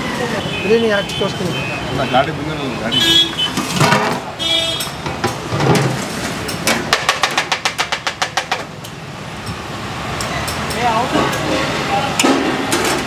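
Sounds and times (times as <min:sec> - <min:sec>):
traffic: 0:00.0 - 0:13.0
steel dishes and ladle clattering: 0:10.4 - 0:13.0.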